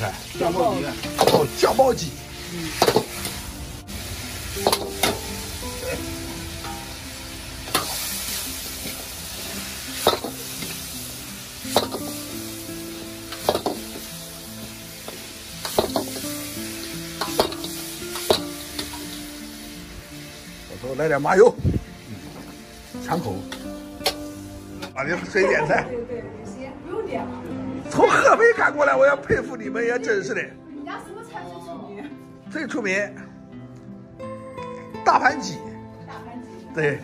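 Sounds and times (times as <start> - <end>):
chicken sizzling in a wok: 0.0 - 25.7.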